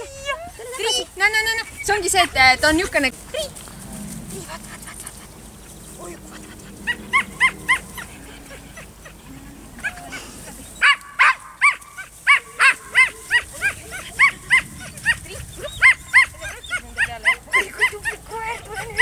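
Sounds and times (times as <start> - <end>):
puppy yipping: 6.6 - 9.2, 10.8 - 19.0.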